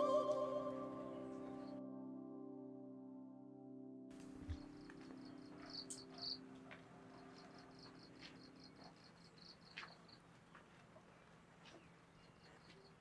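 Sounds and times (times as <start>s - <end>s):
held music chord: 0.0s - 7.2s
cricket chirping: 4.4s - 10.4s, 11.8s - 13.0s.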